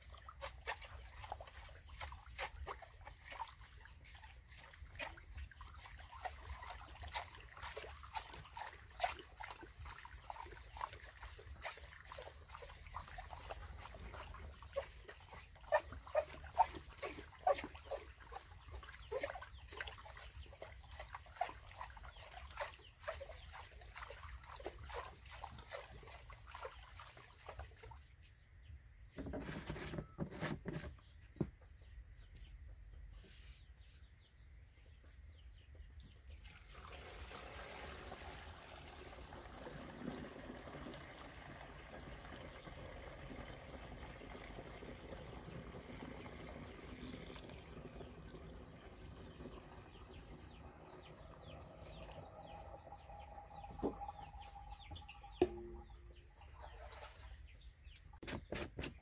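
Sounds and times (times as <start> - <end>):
liquid pouring into plastic tank: 36.4 - 55.9.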